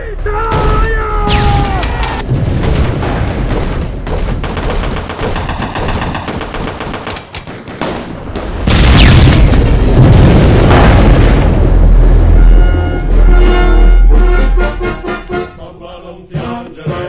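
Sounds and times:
rifle and machine-gun fire: 1.3s - 11.3s
loud blast: 8.6s - 14.2s.

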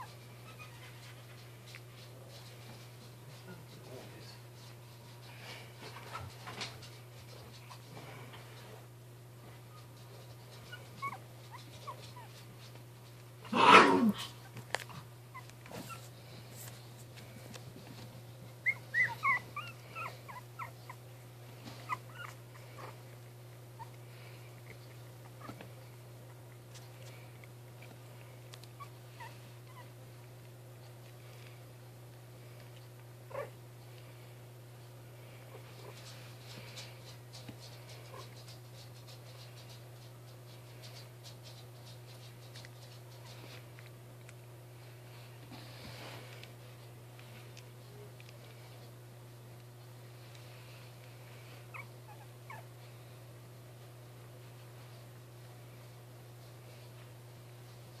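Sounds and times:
puppies squeaking and whimpering: 0.0s - 1.3s, 9.7s - 12.5s, 15.3s - 16.1s, 18.6s - 21.0s, 21.6s - 23.0s, 28.8s - 30.0s, 51.7s - 52.7s
puppy paws scratching on blanket: 0.0s - 13.5s, 14.2s - 58.0s.

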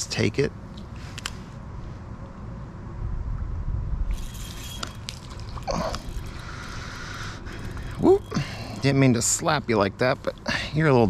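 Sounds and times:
low handling rumble: 1.6s - 11.0s
fish splashing at surface: 4.2s - 6.8s
water dripping: 4.8s - 6.9s.

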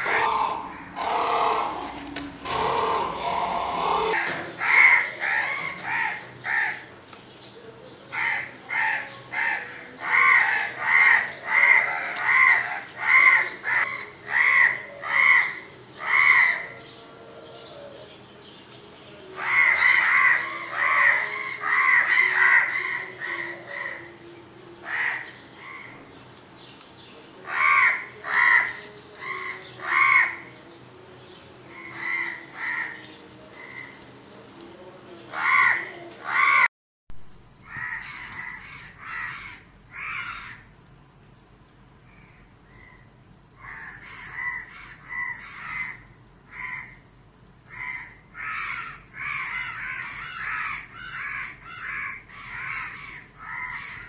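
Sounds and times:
crows cawing harshly: 0.0s - 1.9s, 2.5s - 6.9s, 8.1s - 16.8s, 19.3s - 24.1s, 24.8s - 26.0s, 27.4s - 30.5s, 31.7s - 33.0s, 33.6s - 34.0s, 35.3s - 36.7s, 37.6s - 40.7s, 43.6s - 47.0s, 47.7s - 54.0s.

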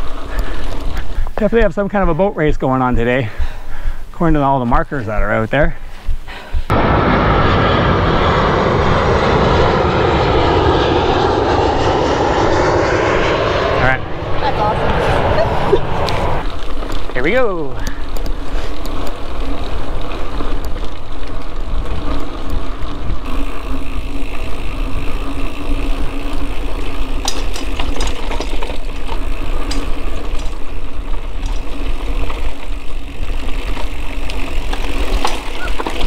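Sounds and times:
bike clicks and rattles: 0.0s - 6.3s, 16.4s - 36.0s
bike tyres rumbling on dirt: 0.0s - 6.3s, 16.2s - 36.0s
wind on microphone: 6.5s - 16.5s.

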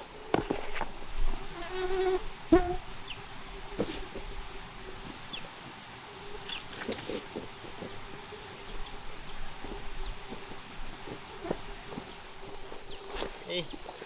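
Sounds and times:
insects chirring: 0.0s - 14.0s.

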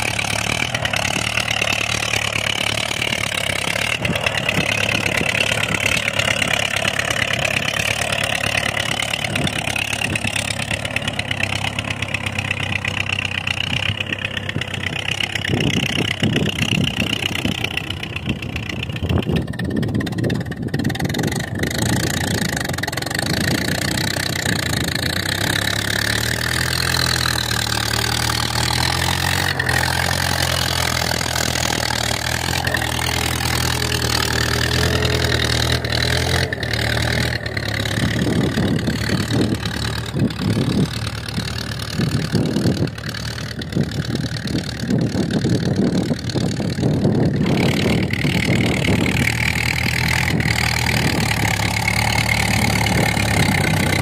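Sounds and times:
gusty rumble: 0.0s - 54.0s
tractor engine under load: 0.0s - 54.0s.

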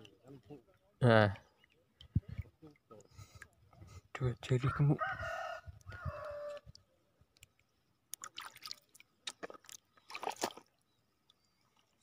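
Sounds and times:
rooster crowing: 4.7s - 6.6s
water splashing from wading: 8.1s - 10.8s.

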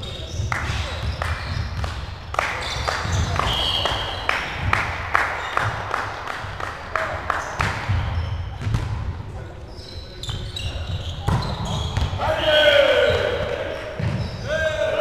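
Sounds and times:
volleyball smacks and thuds: 7.6s - 9.1s
players calling out: 9.7s - 15.0s.

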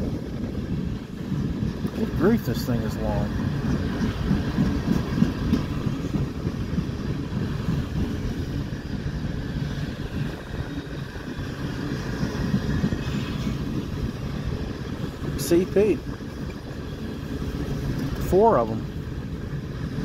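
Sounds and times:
train wheels rumbling on rails: 0.0s - 20.0s.

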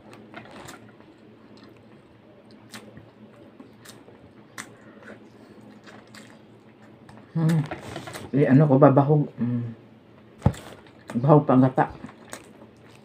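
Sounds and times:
wet chewing: 0.0s - 8.3s, 11.9s - 13.0s.

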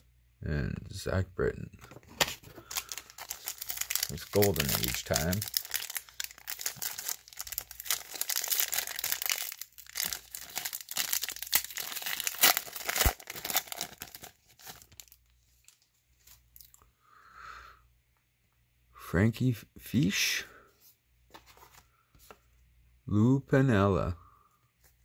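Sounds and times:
foil pack crinkling and tearing: 2.2s - 15.3s
cards being handled: 21.3s - 22.5s.

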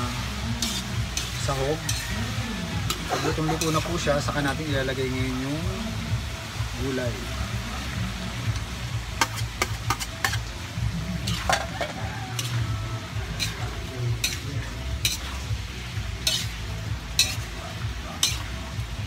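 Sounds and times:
metal spatula scraping wok: 0.0s - 5.0s, 8.5s - 19.0s
vegetables sizzling: 0.0s - 19.0s.

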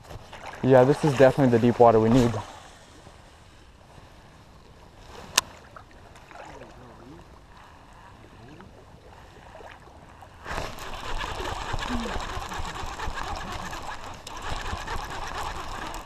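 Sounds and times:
river water: 0.0s - 16.0s
fishing reel whirring: 9.2s - 16.0s.

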